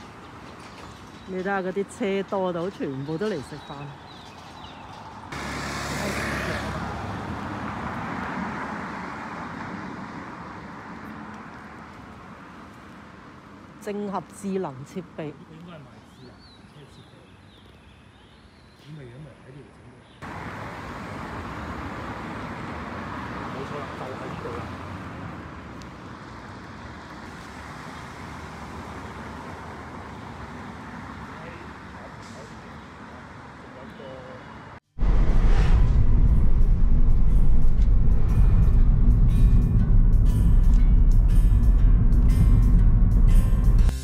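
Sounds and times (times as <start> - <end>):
road traffic rumble: 0.0 - 44.0
vehicle going by: 4.7 - 13.4, 20.2 - 44.0.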